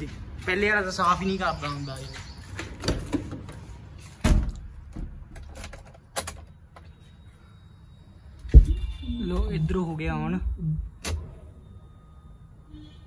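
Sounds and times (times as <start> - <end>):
low thump: 8.5 - 9.0.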